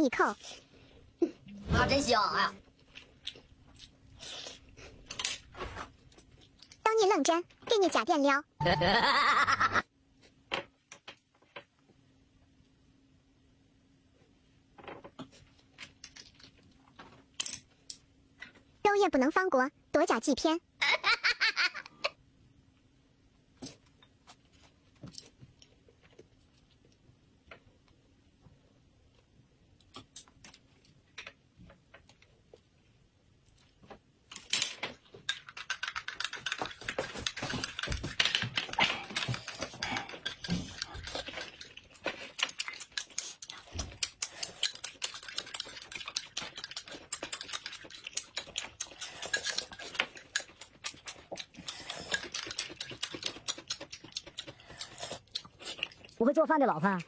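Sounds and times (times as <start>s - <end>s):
chewing and sipping: 38.7s - 56.2s.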